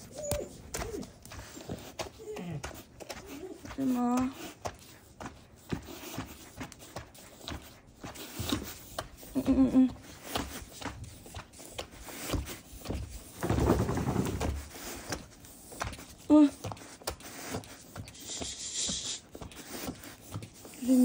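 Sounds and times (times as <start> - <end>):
dog paws knocking on wooden floor: 12.9 - 15.2.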